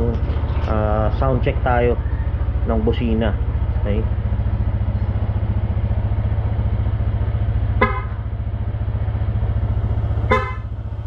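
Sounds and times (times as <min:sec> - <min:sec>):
scooter engine idling: 0:00.0 - 0:11.0
scooter horn toots: 0:07.7 - 0:08.2, 0:10.2 - 0:10.8.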